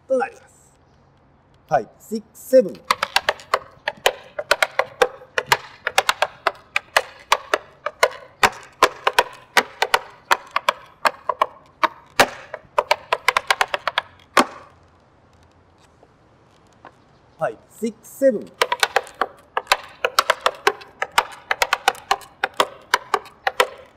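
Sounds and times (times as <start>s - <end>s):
tap shoes on wooden board: 2.6s - 14.8s, 17.8s - 23.9s.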